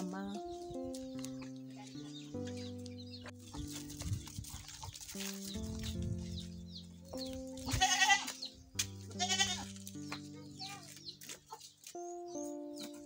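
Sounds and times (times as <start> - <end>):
background music of held notes: 0.0 - 13.0
goat bleating: 7.7 - 8.4, 9.1 - 9.7.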